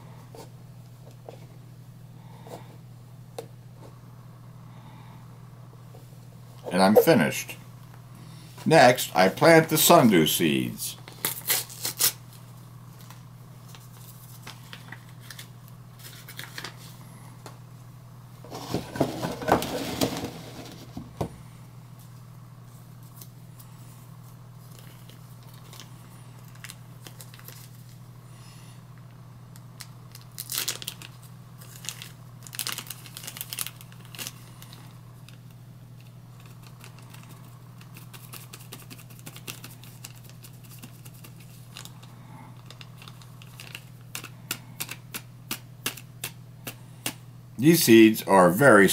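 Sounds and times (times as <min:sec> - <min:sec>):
steady low hum: 0:00.0 - 0:48.9
paper packet tearing: 0:11.1 - 0:12.2, 0:30.1 - 0:34.8, 0:36.4 - 0:45.0
paper envelope crinkling: 0:13.0 - 0:16.9, 0:24.7 - 0:28.0, 0:29.7 - 0:45.2.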